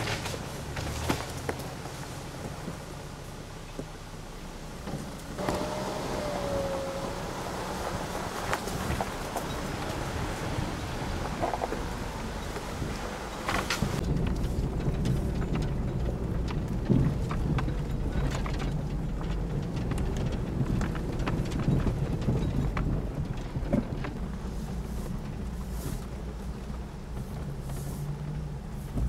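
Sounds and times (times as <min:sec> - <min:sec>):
engine running at low speed: 0:00.0 - 0:29.0
sharp clicks and knocks: 0:13.4 - 0:24.5.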